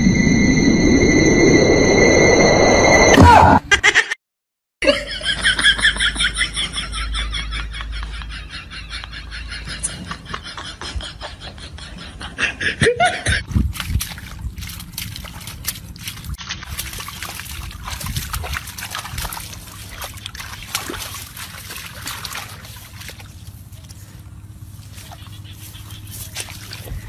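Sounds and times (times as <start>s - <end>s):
loud short rising sound: 0.0s - 3.6s
dog digging in wet mud: 13.5s - 27.0s.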